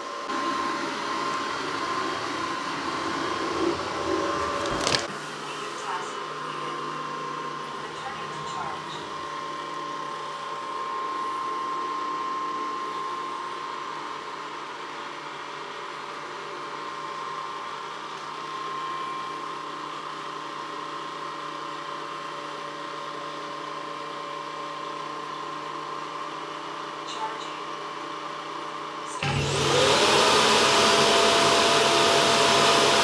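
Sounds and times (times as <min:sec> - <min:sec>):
robot vacuum motor hum: 0:00.3 - 0:13.7.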